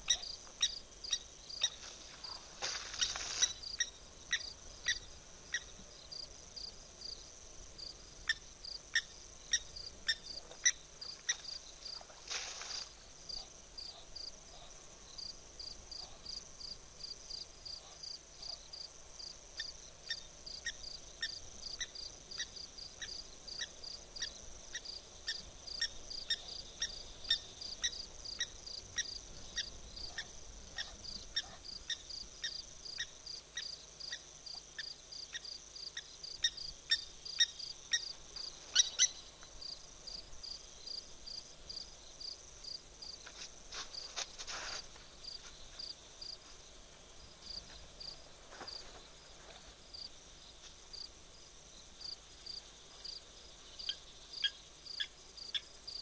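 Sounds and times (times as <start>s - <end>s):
insects trilling: 0.0s - 14.4s, 15.0s - 46.5s, 47.2s - 56.0s
insect chirps: 0.0s - 56.0s.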